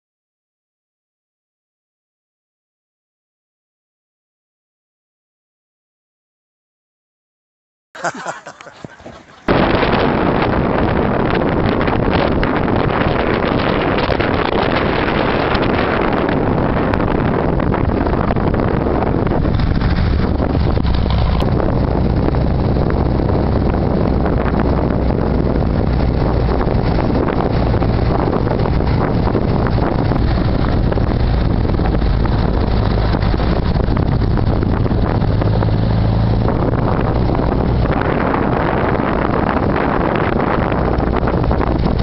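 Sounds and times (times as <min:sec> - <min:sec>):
wind buffeting microphone: 0:08.2 - 0:42.0
trike engine running: 0:16.9 - 0:42.0.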